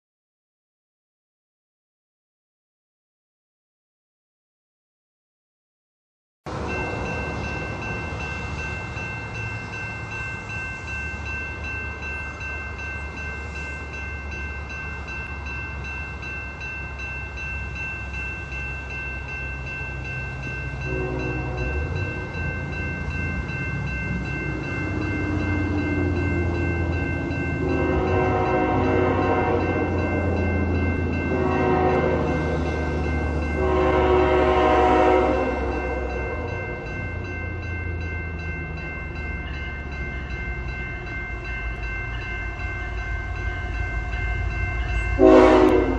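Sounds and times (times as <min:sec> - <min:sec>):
diesel locomotive engine drone: 0:06.5 - 0:45.9
steady high ringing tone: 0:06.7 - 0:45.9
train air horn blasts: 0:20.9 - 0:21.9, 0:27.6 - 0:30.0, 0:31.2 - 0:32.6, 0:33.6 - 0:36.6, 0:45.2 - 0:45.9.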